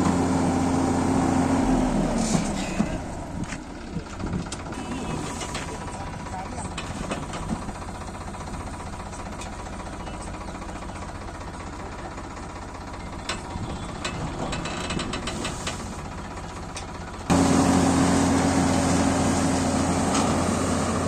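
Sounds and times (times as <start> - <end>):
tractor engine running: 0.0 - 21.0.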